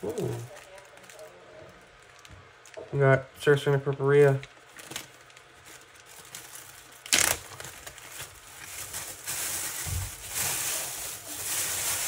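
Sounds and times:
plastic bags crinkling: 0:00.0 - 0:03.2, 0:04.1 - 0:12.0.

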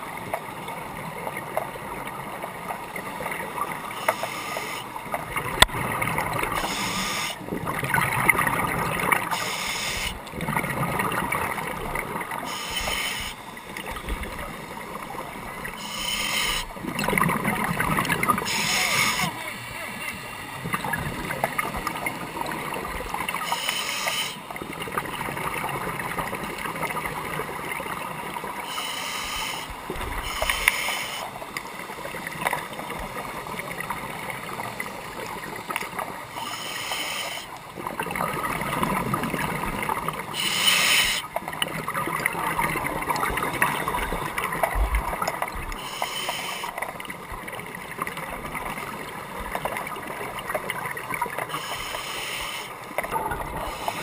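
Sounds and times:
underwater gurgling hiss: 0:03.8 - 0:05.4, 0:06.2 - 0:10.2, 0:12.2 - 0:14.8, 0:15.7 - 0:20.8, 0:21.6 - 0:25.6, 0:28.2 - 0:31.8, 0:36.2 - 0:37.8, 0:38.5 - 0:41.3, 0:45.5 - 0:47.1, 0:51.2 - 0:54.0.

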